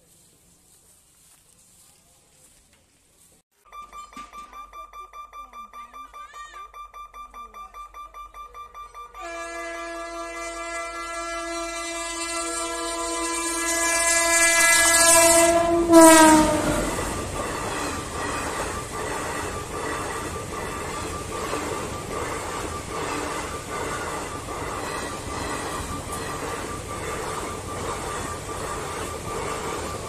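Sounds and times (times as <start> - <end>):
train horn blast: 9.2 - 17.2
train wheels clattering: 13.7 - 30.0.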